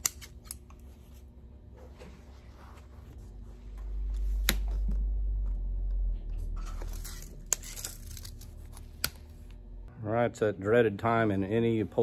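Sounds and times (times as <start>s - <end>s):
low rumble: 3.2s - 10.0s.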